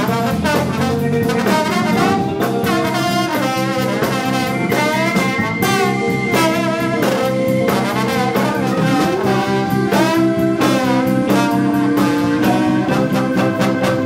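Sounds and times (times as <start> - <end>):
funk band groove: 0.0 - 14.0
trombone solo: 0.0 - 14.0.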